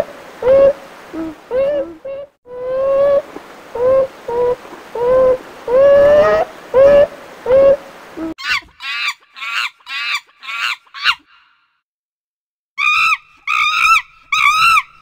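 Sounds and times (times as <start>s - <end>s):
high chirping primate calls: 8.4s - 11.3s, 12.8s - 15.0s.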